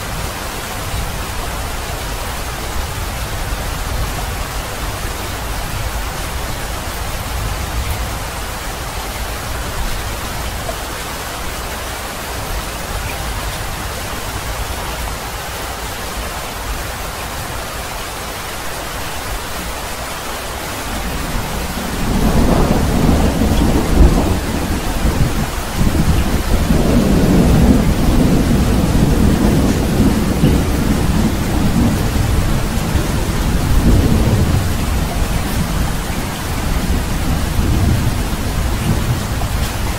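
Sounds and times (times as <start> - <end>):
steady rain: 0.0 - 39.9
thunder rumbling: 20.8 - 39.9.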